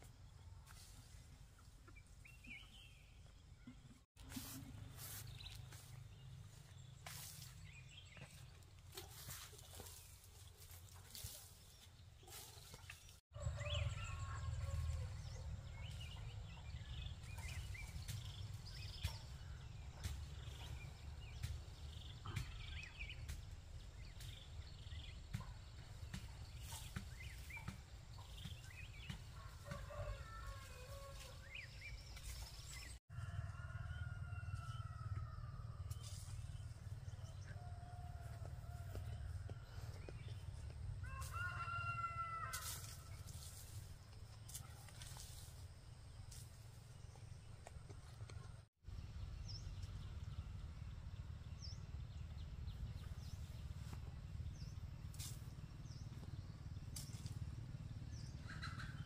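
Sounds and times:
chickens clucking: 58.4s - 59.0s.

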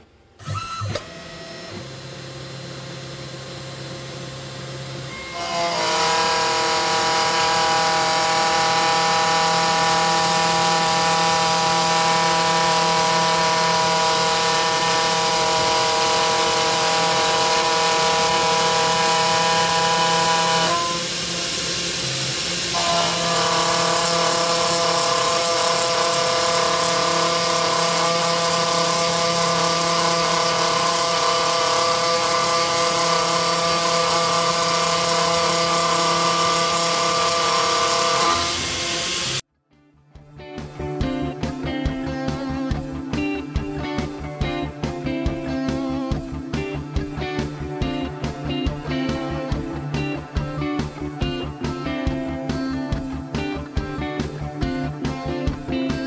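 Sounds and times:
router spindle cutting whine: 0.4s - 39.4s.

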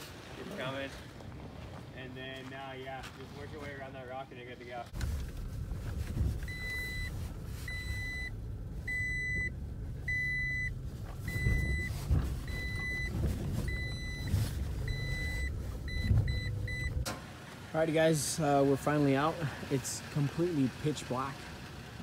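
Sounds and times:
truck engine and tyre rumble: 0.0s - 22.0s
vehicle bumps: 10.8s - 17.3s.

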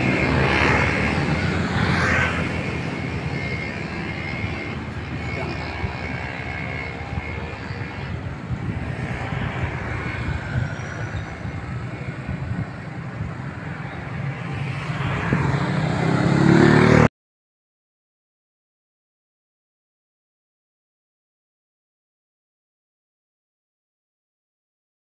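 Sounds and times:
motorcycles driving past: 0.0s - 17.1s.

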